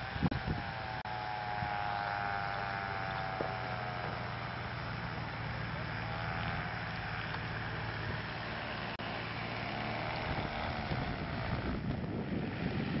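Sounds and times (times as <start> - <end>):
wind buffeting microphone: 0.0 - 2.0, 9.8 - 13.0
model airplane engine running: 0.0 - 13.0.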